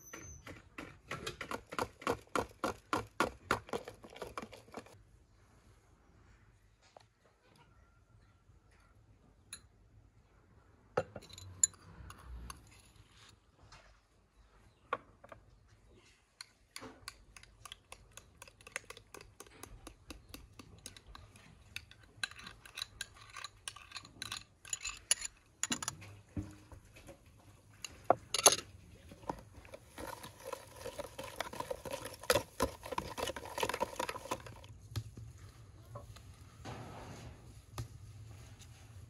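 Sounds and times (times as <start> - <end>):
spoon clinking on glass bowls: 20.8 - 26.0
whisk beating batter in bowl: 29.5 - 34.7.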